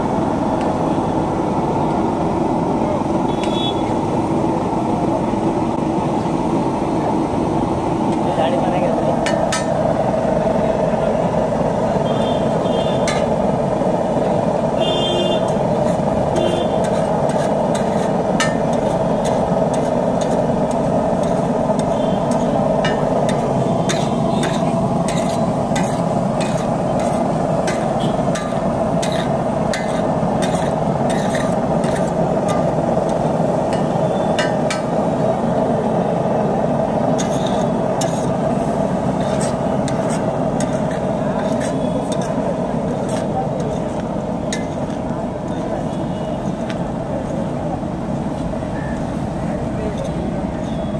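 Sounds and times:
metal spatula scraping an iron griddle: 0:13.0 - 0:13.4, 0:15.4 - 0:35.0, 0:37.2 - 0:44.8.

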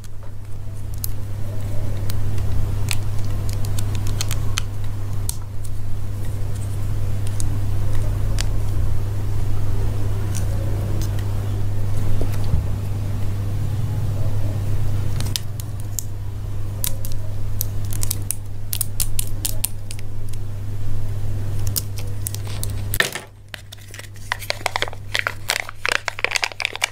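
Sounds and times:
steady low hum: 0:00.0 - 0:26.9
foil wrapping crinkling: 0:22.2 - 0:26.9.

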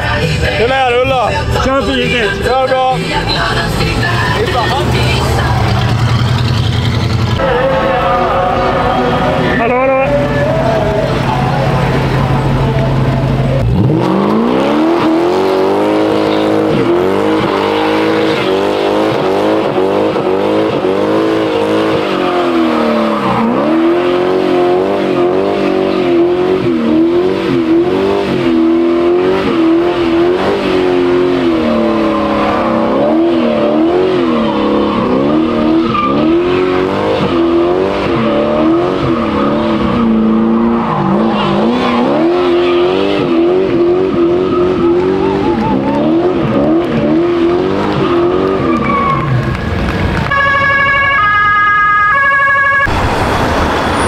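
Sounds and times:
car engine revving: 0:00.0 - 0:50.8.

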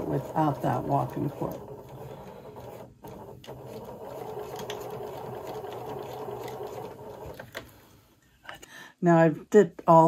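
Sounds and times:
sewing machine clicks: 0:00.0 - 0:07.7
sewing machine stitching: 0:00.0 - 0:07.8.

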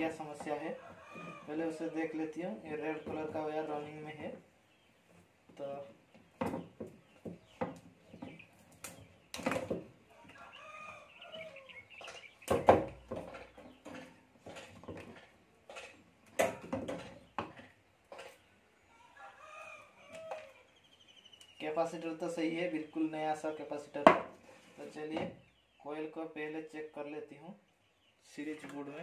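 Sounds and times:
bird calling: 0:10.1 - 0:12.9.

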